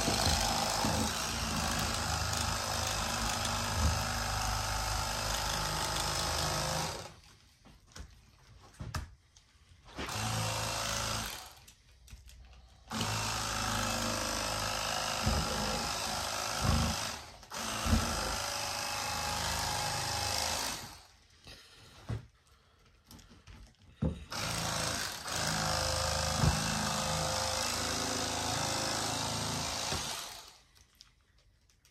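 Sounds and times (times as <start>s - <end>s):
electric fillet knife buzzing: 0.0s - 7.2s, 10.1s - 11.6s, 12.9s - 21.1s, 24.3s - 30.6s.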